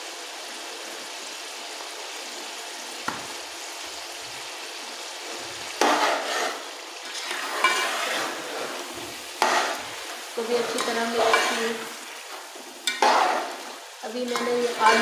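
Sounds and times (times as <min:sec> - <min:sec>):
food sizzling in a pot: 0:00.0 - 0:15.0
utensil scraping a pot: 0:05.8 - 0:15.0.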